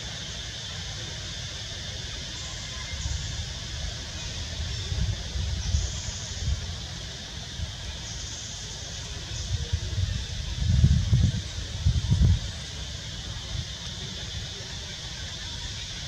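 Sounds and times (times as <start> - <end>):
steady high-pitched hiss: 0.0 - 16.0
wind buffeting microphone: 2.9 - 8.0, 8.8 - 14.9.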